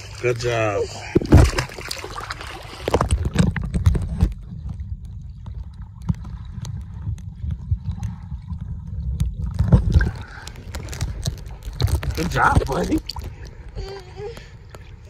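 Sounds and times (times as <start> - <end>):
underwater churning: 0.0 - 15.0
water splashing: 0.0 - 15.0
underwater knocks from kicking: 1.2 - 2.0.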